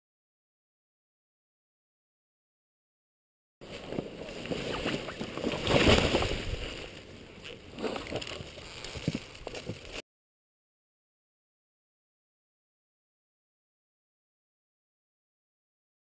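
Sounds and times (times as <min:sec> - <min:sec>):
dirt bike falling into leaves: 0:03.7 - 0:10.0.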